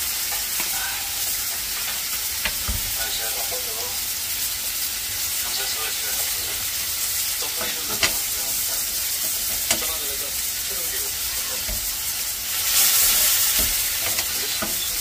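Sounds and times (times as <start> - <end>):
meat sizzling on grill pan: 0.0 - 15.0
metal tongs clicking on pan: 7.6 - 8.2, 9.2 - 9.9, 13.3 - 15.0.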